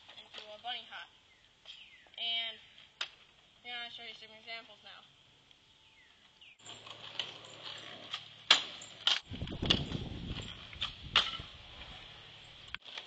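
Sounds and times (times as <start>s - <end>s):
kick scooter clacking on asphalt: 6.6s - 11.8s
scooter wheels rumbling: 6.6s - 13.0s.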